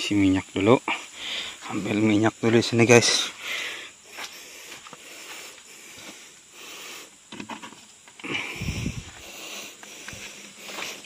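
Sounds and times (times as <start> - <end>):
muffled low rumble: 8.5 - 9.4.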